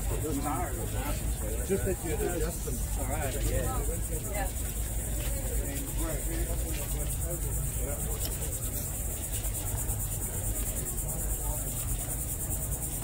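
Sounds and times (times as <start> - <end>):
faint chatter of people: 0.0 - 13.0
insects trilling: 0.0 - 13.0.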